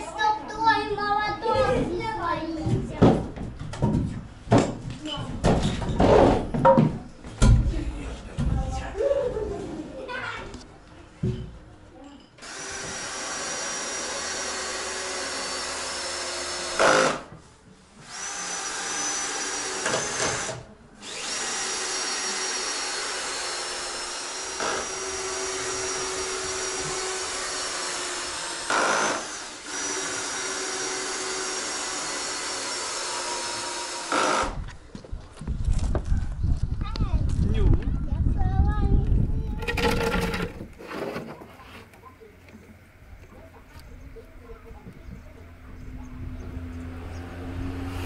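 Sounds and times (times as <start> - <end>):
power tool motor whining: 12.4 - 17.3, 18.0 - 34.7.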